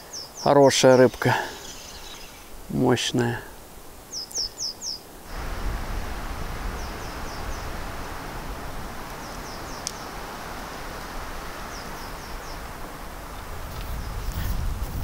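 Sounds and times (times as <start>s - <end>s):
small bird chirping: 0.0s - 2.6s, 4.1s - 5.0s
background hiss: 0.0s - 15.0s
low wind rumble: 1.0s - 15.0s.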